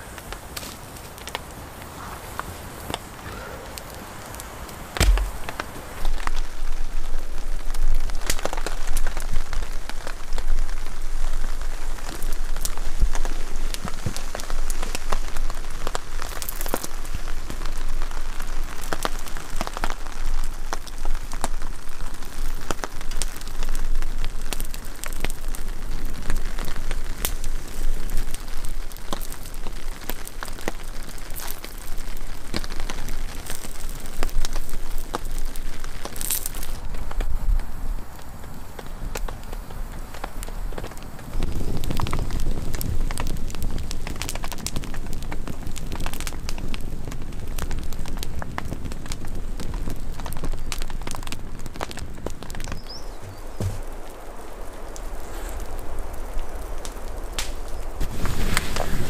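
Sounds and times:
rain pattering: 0.0s - 59.0s
sharp raindrop hits: 4.9s - 6.7s.

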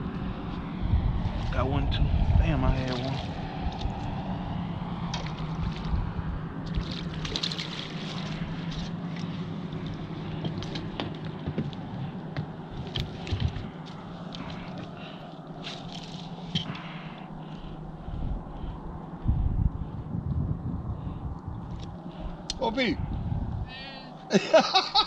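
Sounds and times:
low motor hum: 0.0s - 25.0s
light clicks and splashes: 2.8s - 4.2s, 5.0s - 17.7s.

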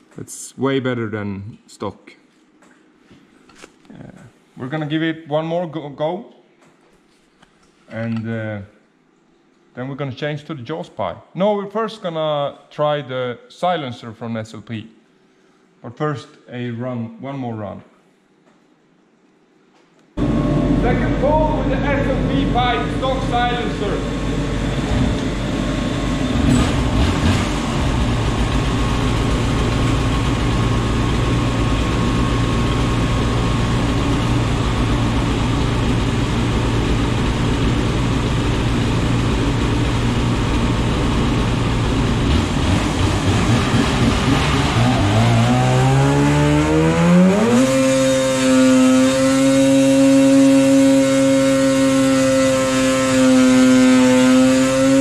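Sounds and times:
snowmobile engine revving: 20.2s - 55.0s.

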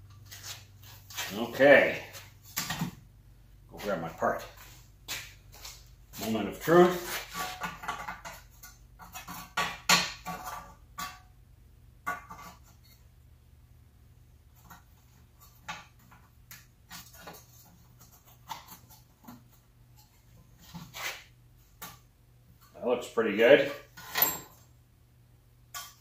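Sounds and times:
metal parts clinking: 24.0s - 24.6s.

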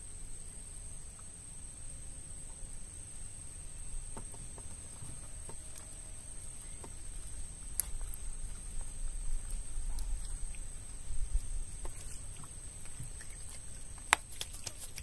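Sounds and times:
insects droning: 0.0s - 15.0s
low rumble: 2.7s - 14.2s.

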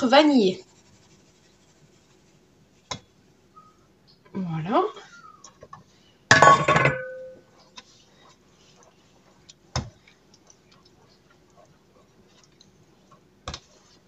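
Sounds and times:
wooden spoon stirring in metal pot: 0.0s - 3.0s.

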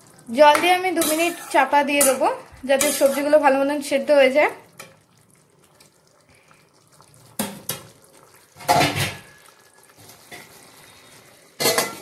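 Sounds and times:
metal utensils knocking on a pan: 11.6s - 12.0s.

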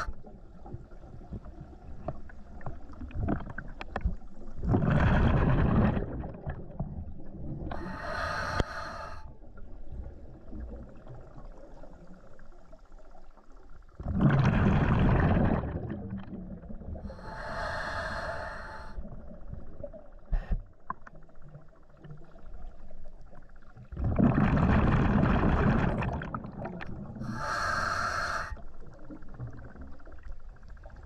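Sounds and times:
exhaled bubbles underwater: 0.0s - 31.0s
hissing regulator inhalation: 7.7s - 9.3s, 17.1s - 19.0s, 27.2s - 28.6s.

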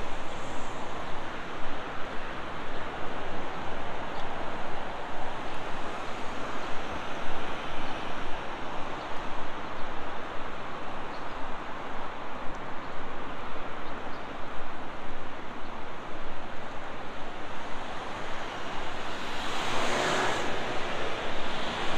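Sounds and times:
road traffic rushing: 17.4s - 21.9s.

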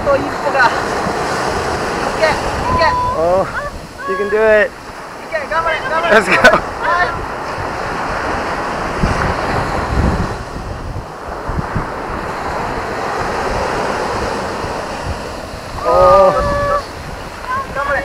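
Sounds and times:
surf breaking on beach: 0.0s - 18.0s
wind buffeting microphone: 0.0s - 18.0s
person calling out: 2.6s - 4.5s, 15.8s - 16.9s.

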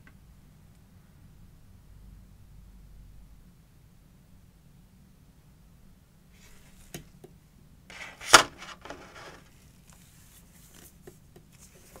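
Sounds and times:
packaging rustling: 7.9s - 10.0s.

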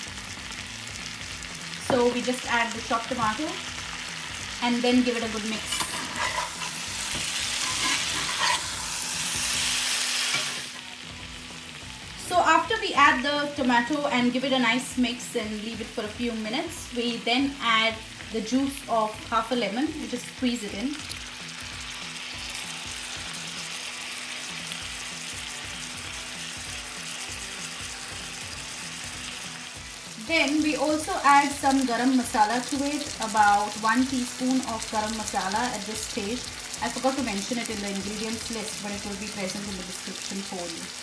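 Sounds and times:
chicken and tomato sizzling in skillet: 0.0s - 41.0s
spatula scraping pan: 5.3s - 10.8s.

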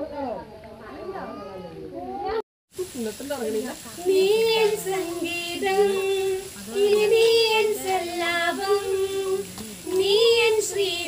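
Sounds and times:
two women singing: 4.0s - 11.0s.

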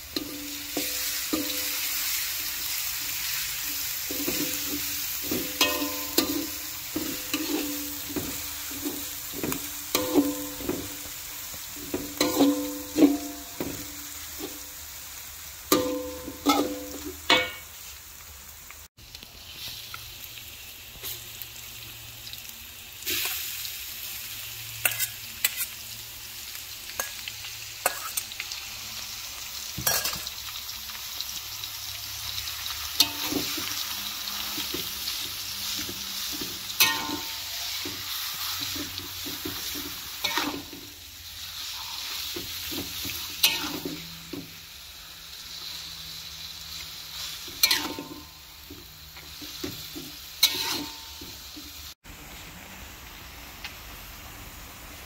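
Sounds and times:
spatula scraping a wok: 0.0s - 14.7s, 24.7s - 25.9s, 26.9s - 28.4s, 32.4s - 44.6s, 45.4s - 51.9s
meat sizzling in a wok: 0.0s - 55.0s.

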